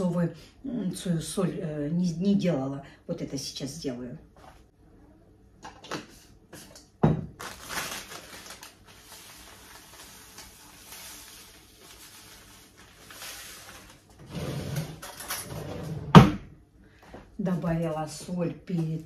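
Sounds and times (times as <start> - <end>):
seasoning pouring grainy rustle: 8.0 - 14.2.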